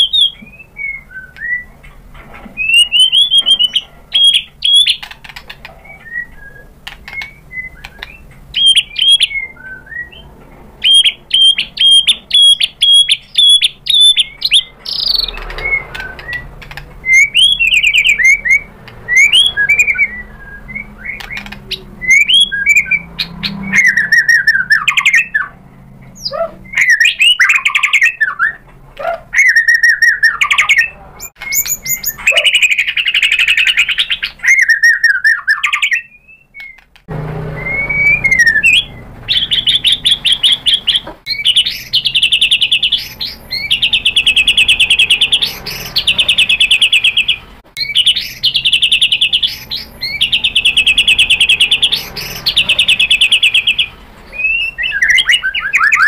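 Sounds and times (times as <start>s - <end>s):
bird singing varied song: 0.0s - 56.0s.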